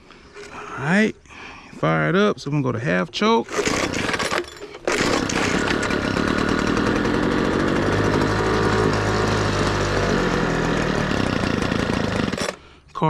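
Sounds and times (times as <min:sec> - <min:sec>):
leaf blower engine running: 0:03.5 - 0:12.8.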